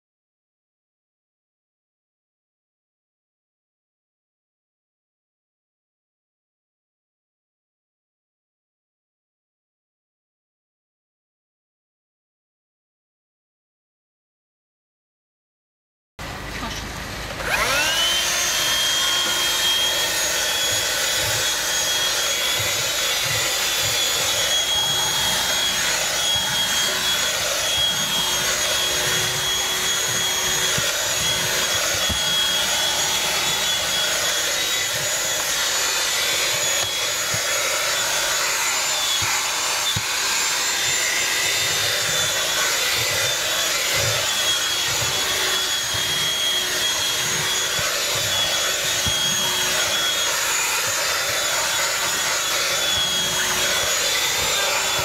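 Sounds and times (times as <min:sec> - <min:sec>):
handheld vacuum motor whine: 0:16.2 - 0:55.0.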